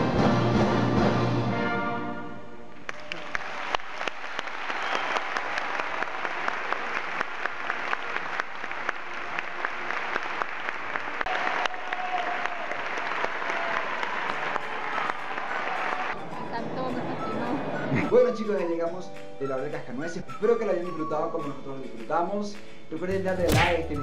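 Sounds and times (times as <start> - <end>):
audience applauding: 2.7 - 18.8.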